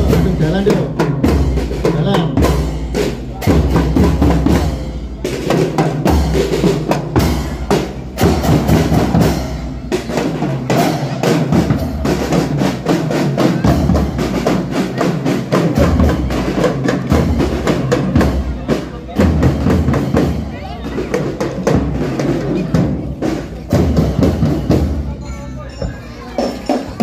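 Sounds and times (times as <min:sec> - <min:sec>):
snare and tenor drums: 0:00.0 - 0:25.2.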